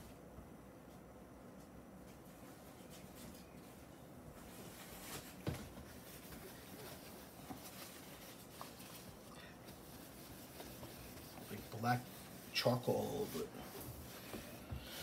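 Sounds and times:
hand rubbing cardboard box: 0:04.5 - 0:15.0.

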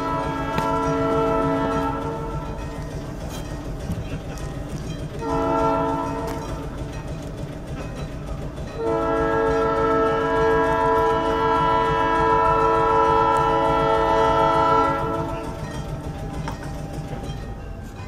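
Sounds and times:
air horn chord blast: 0:00.0 - 0:02.6, 0:05.2 - 0:06.6, 0:08.8 - 0:15.5.

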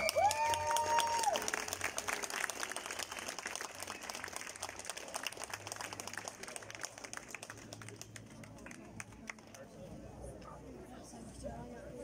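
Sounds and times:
audience applause: 0:00.0 - 0:09.5.

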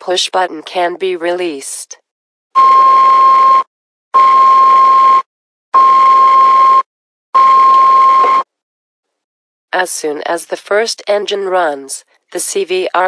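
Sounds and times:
steady pitch beeps: 0:02.6 - 0:08.5.

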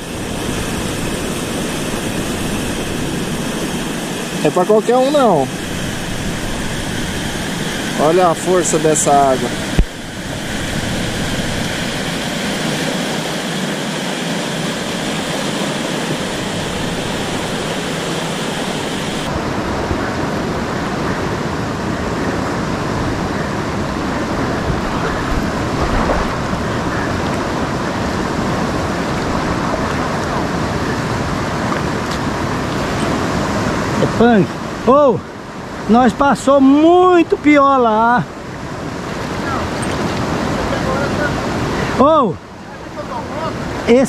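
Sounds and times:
river rapids rushing: 0:00.0 - 0:44.0.

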